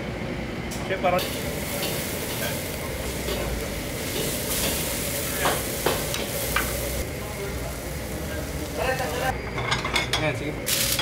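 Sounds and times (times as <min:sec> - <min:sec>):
fish sizzling on a grill: 0:01.2 - 0:09.4, 0:10.7 - 0:11.0.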